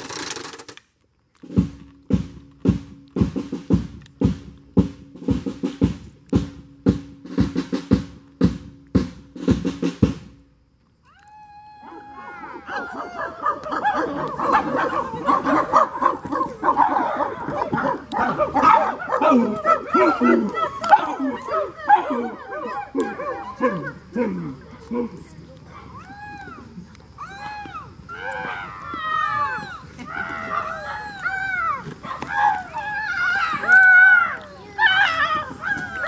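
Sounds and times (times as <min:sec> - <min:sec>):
drum beating fast: 0:01.5 - 0:10.4
voices howling and yelping: 0:11.0 - 0:36.0.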